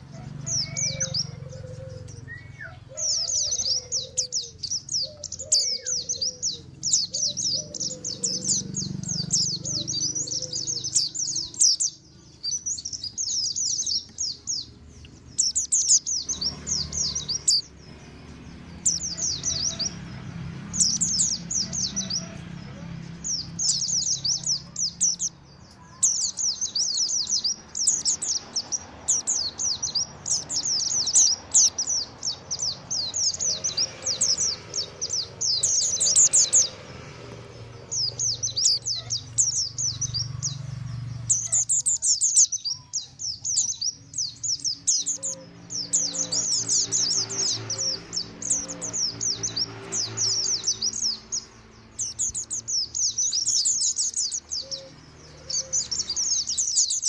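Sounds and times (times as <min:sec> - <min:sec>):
bird twittering rapidly: 0:00.0 - 0:57.0.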